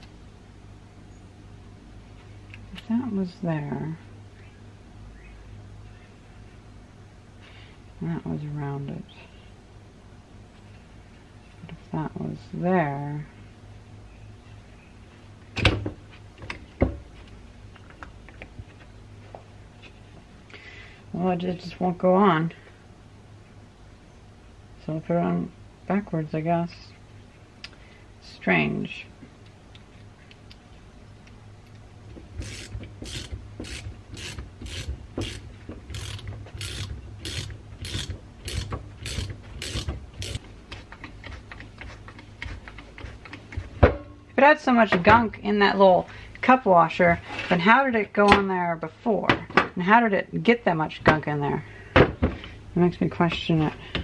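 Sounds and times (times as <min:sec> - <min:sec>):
low steady hum: 0:00.0 - 0:54.0
ratchet wrench clicking: 0:32.4 - 0:40.4.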